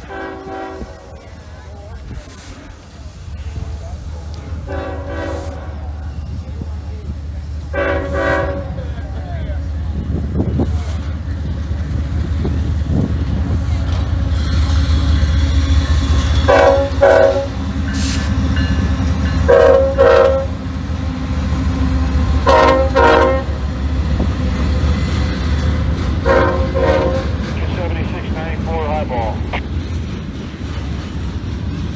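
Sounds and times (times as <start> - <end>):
train horn blasts: 0.0 - 1.1, 4.6 - 5.8, 7.7 - 8.8, 16.2 - 18.2, 19.5 - 20.6, 22.4 - 23.6, 26.2 - 27.4
diesel locomotive engine rumble: 0.0 - 31.9.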